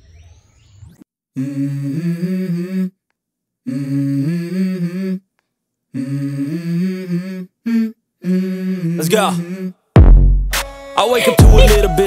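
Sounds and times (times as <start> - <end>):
person humming a melody: 1.4 - 3.0, 3.6 - 5.3, 5.9 - 9.8, 11.0 - 12.0.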